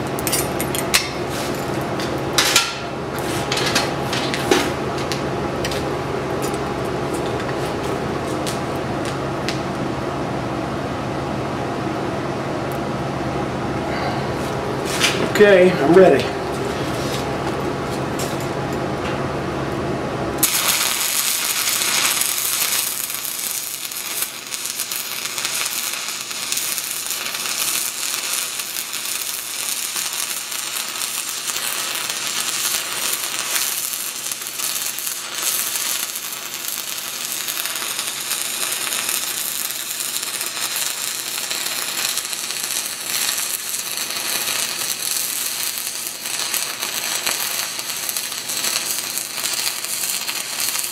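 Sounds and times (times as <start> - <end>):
welding arc crackling: 0.0 - 9.7, 20.4 - 50.9.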